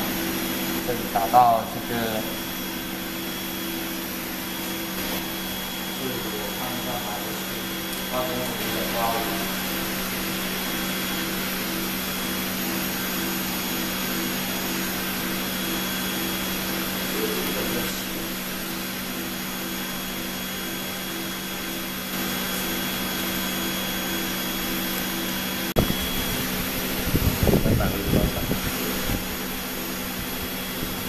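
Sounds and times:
exhaust equipment humming and hissing: 0:00.0 - 0:31.0
low pulsing tone: 0:25.8 - 0:31.0.

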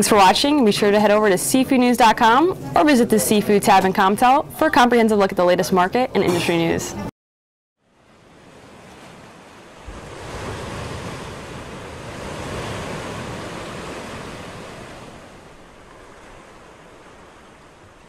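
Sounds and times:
ocean waves rushing: 0:07.9 - 0:18.0.

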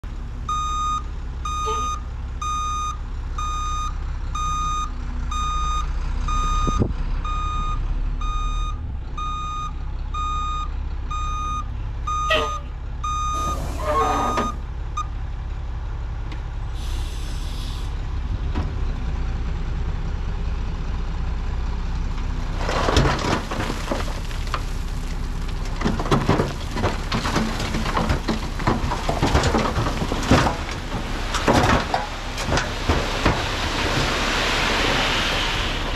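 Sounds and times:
diesel truck engine running: 0:00.0 - 0:35.9
reversing alarm beeping: 0:00.5 - 0:15.1
air brake hisses: 0:16.8 - 0:18.0
dirt and rocks crashing down: 0:22.4 - 0:35.9.

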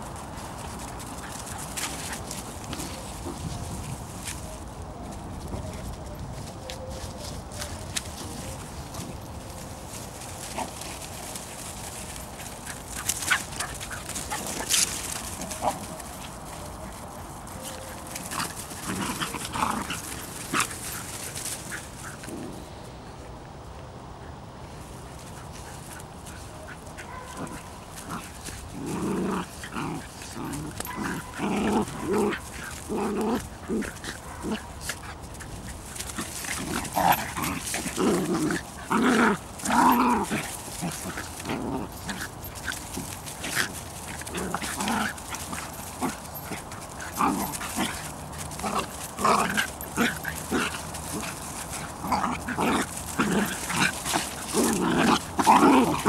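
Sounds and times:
puppies yipping while playing: 0:05.4 - 0:22.3, 0:29.4 - 0:56.0.

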